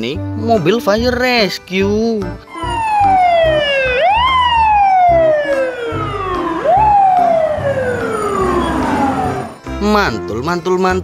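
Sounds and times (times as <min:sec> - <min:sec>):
fire truck siren wailing: 0:02.5 - 0:09.7.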